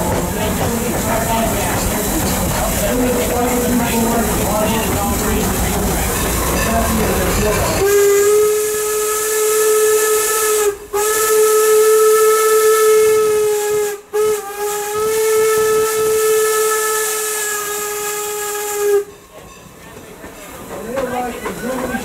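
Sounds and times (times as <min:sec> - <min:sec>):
steam whistle blasts: 0:07.8 - 0:19.2.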